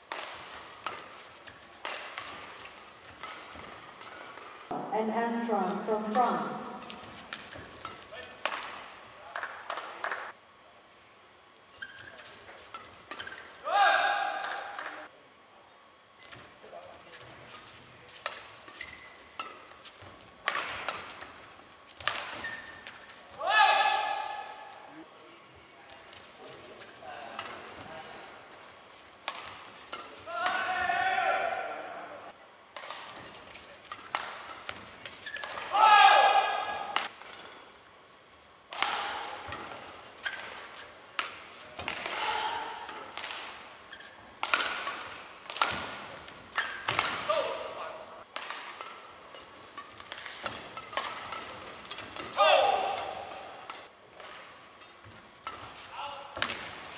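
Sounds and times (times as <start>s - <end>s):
rackets hitting shuttlecock: 0.0s - 4.9s, 5.6s - 10.4s, 11.8s - 15.1s, 16.2s - 25.0s, 25.8s - 28.5s, 29.1s - 32.1s, 32.7s - 37.7s, 38.7s - 56.9s
court shoes squeaking: 6.7s - 10.3s, 11.6s - 13.6s, 16.2s - 23.4s, 32.8s - 35.8s, 39.2s - 41.9s, 42.6s - 48.0s
shoes squeaking on court: 11.6s - 13.6s, 17.0s - 20.3s, 21.1s - 23.4s, 33.1s - 35.6s, 43.8s - 44.4s.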